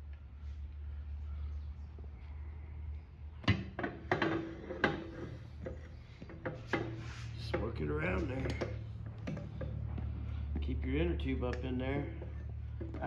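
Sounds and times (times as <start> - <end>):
steady low hum: 0.0 - 13.0
tools knocking on wheel rim: 3.4 - 13.0.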